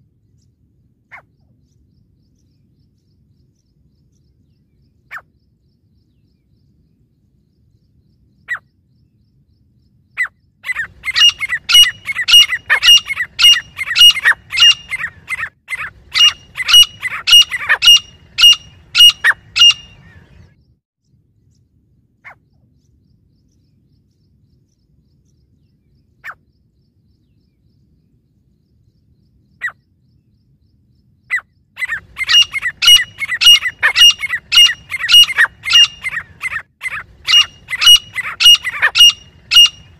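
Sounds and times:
francolins calling: 0:10.2 - 0:20.6, 0:31.3 - 0:39.9.

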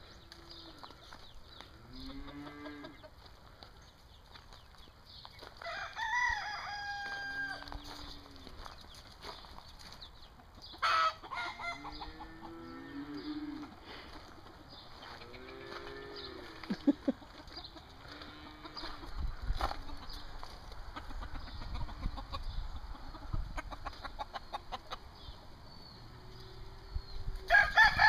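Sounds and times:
rooster crowing: 0:05.6 - 0:07.8, 0:27.5 - 0:28.0.

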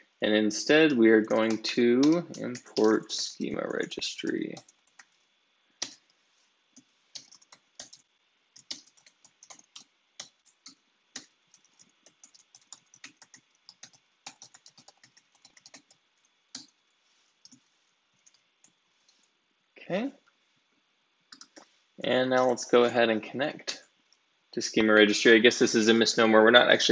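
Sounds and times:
keyboard typing: 0:01.3 - 0:05.2, 0:06.8 - 0:16.8, 0:17.4 - 0:18.8, 0:21.3 - 0:21.6.

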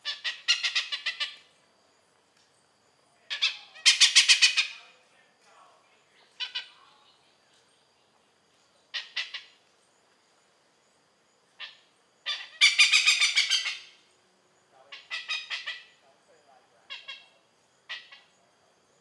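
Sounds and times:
hornbill cackling calls: 0:00.0 - 0:01.5, 0:03.3 - 0:04.9, 0:06.2 - 0:06.8, 0:08.9 - 0:09.6, 0:11.6 - 0:14.1, 0:14.9 - 0:16.0, 0:16.8 - 0:18.4.

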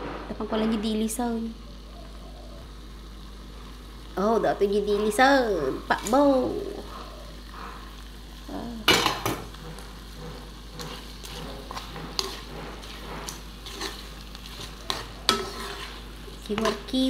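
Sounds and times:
food sizzling: 0:00.0 - 0:17.0
spatula scraping a wok: 0:09.0 - 0:17.0.

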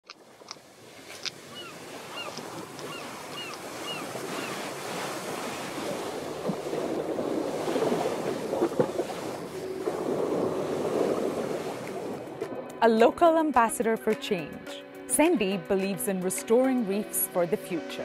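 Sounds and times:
surf washing over rocks: 0:00.2 - 0:12.6.

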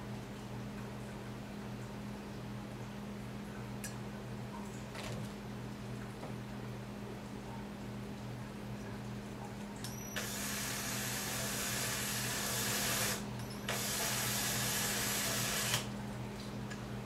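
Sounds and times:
low steady hum: 0:00.0 - 0:17.0
cordless drill driving screws: 0:10.2 - 0:15.9.

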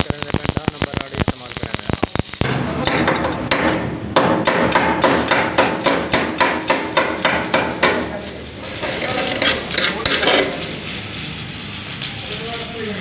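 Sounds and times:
chipping hammer striking metal: 0:02.4 - 0:08.2.

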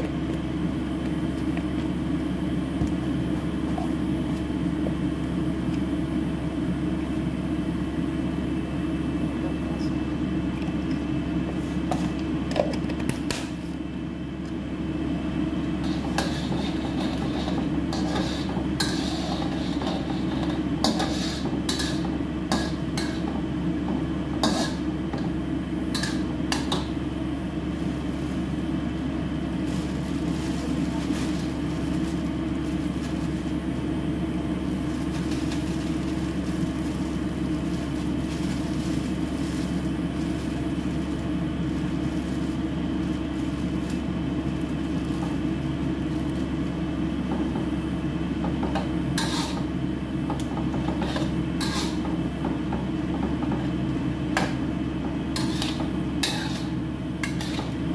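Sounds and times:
steady low hum: 0:00.0 - 0:57.9
metal spatula scraping a wok: 0:15.8 - 0:23.2, 0:24.4 - 0:24.8, 0:49.2 - 0:49.6, 0:51.0 - 0:52.0, 0:55.4 - 0:57.7.

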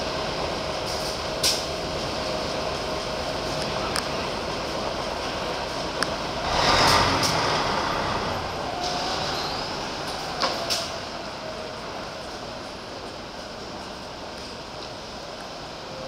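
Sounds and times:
diesel bus pulling away: 0:05.1 - 0:15.4.

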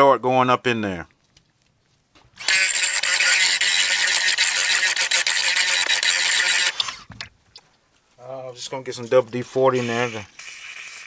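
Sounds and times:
rotary tool grinding metal: 0:02.4 - 0:07.2.

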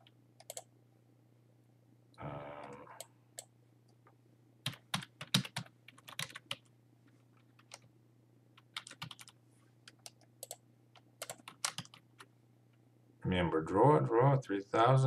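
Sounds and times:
computer keyboard typing: 0:00.0 - 0:00.7, 0:04.6 - 0:06.7, 0:07.4 - 0:07.9, 0:08.6 - 0:12.3.

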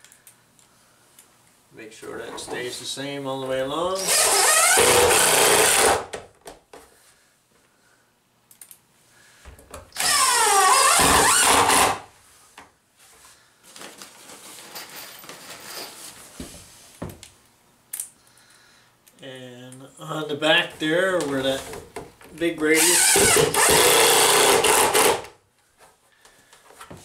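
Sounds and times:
cordless drill driving screws: 0:04.0 - 0:06.1, 0:10.0 - 0:12.0, 0:22.8 - 0:25.3
small handling clicks: 0:08.5 - 0:08.8.

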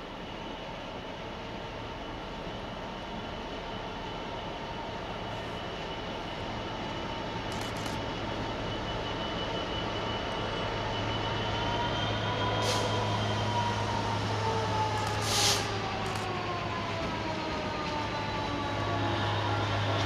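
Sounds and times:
diesel locomotive engine under load: 0:00.0 - 0:20.0
brief hiss: 0:15.0 - 0:15.8.

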